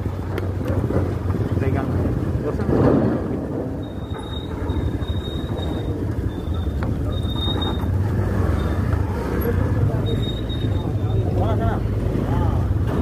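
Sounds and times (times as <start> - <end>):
vehicle engines rumbling: 0.0 - 13.0
thin high squeal: 3.8 - 8.8.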